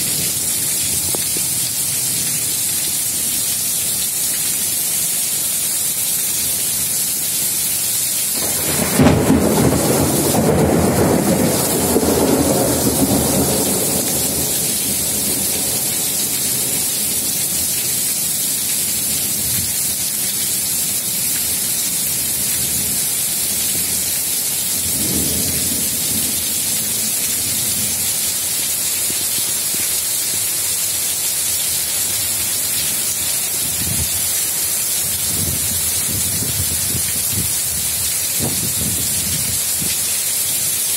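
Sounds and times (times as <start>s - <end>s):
heavy rain falling: 0.0s - 40.9s
thunder rumbling: 8.4s - 17.8s, 24.8s - 28.1s.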